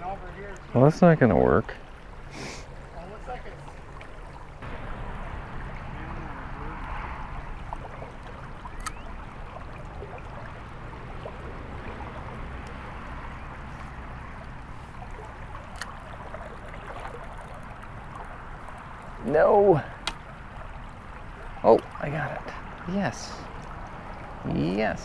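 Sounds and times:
stream running: 0.0 - 25.0
low rumble: 4.6 - 15.4.

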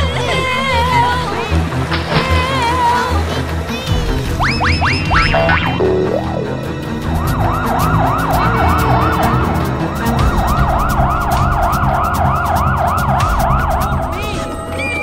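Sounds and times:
background music with steady beat: 0.0 - 15.0
cartoon siren wailing: 5.0 - 14.4.

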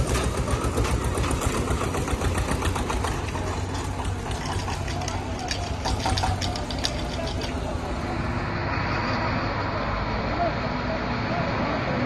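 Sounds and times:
fast irregular clattering knocks: 0.0 - 7.6
heavy machinery engine humming: 0.0 - 12.0.

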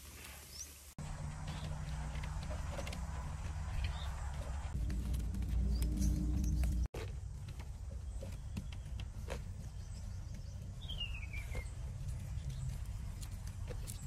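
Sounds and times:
low rumble: 1.0 - 8.6.

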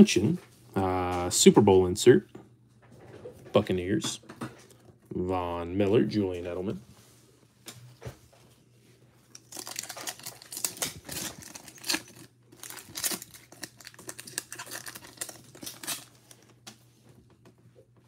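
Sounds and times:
foil pack tearing and crinkling: 9.3 - 16.6.

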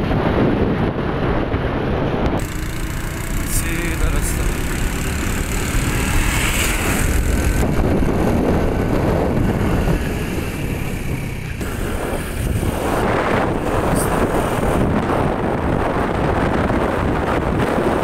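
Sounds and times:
wind buffeting microphone: 0.0 - 18.0
motorcycle engine running: 2.2 - 18.0
tractor passing: 2.4 - 16.0.

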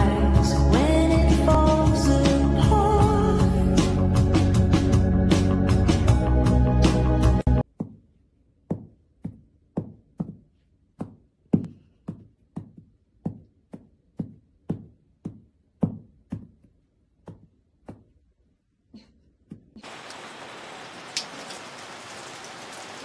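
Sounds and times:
music: 0.0 - 7.6.

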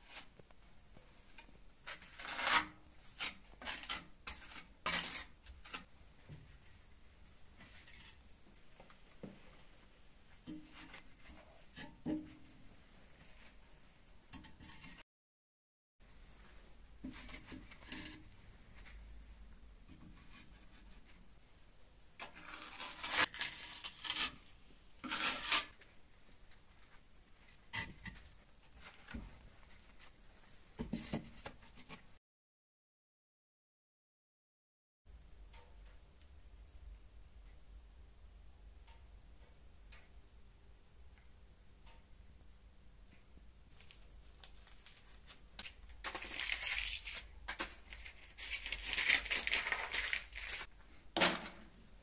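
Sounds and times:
steel trowel scraping mortar: 1.9 - 5.9, 22.2 - 25.8.

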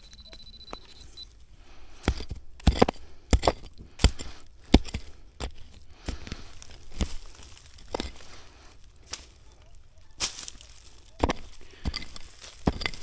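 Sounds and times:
digging tool striking ground: 1.8 - 9.4, 10.2 - 13.0.

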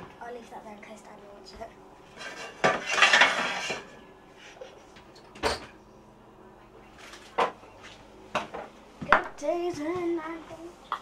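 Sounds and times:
kitchenware clattering: 2.1 - 4.0, 5.1 - 5.8.

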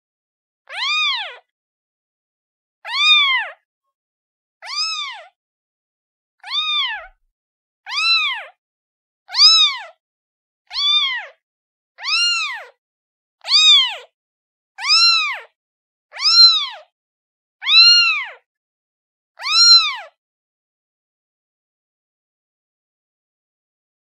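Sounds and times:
kitten meowing: 0.7 - 1.5, 2.8 - 3.6, 4.6 - 5.4, 6.4 - 7.2, 7.9 - 8.6, 9.3 - 10.0, 10.7 - 11.4, 12.0 - 12.8, 13.4 - 14.1, 14.8 - 15.5, 16.1 - 16.9, 17.6 - 18.5, 19.4 - 20.2.

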